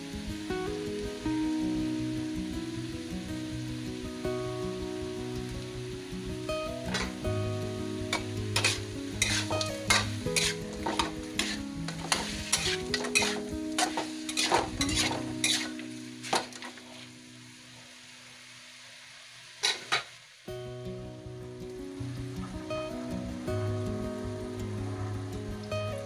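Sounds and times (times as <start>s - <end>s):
chicken sizzling: 0.0s - 26.0s
spatula scraping a wok: 6.9s - 7.2s, 8.1s - 17.1s, 19.6s - 20.1s.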